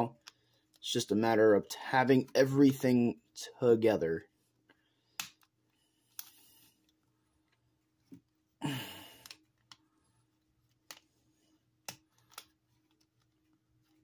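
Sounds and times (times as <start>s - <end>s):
plastic parts clicking and snapping: 11.8s - 13.4s.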